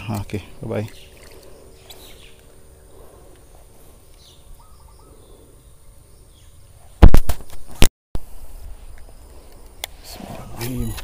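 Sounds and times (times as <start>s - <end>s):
faint bird chirps: 0.8s - 7.0s.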